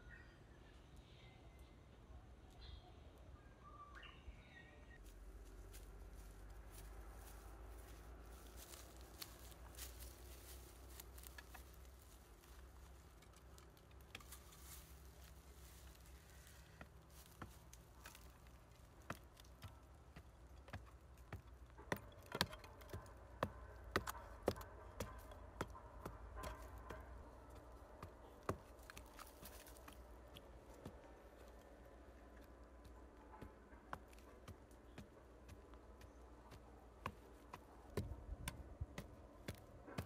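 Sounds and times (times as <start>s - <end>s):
sharp knocks and taps: 19.0s - 31.1s, 32.3s - 40.0s.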